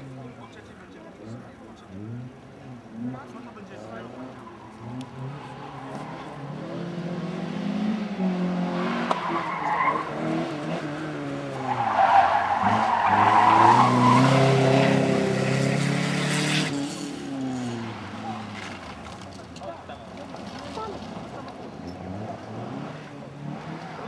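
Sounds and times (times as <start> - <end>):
car engine revving: 1.3 - 19.5, 20.2 - 24.0
tyres squealing: 11.5 - 15.0.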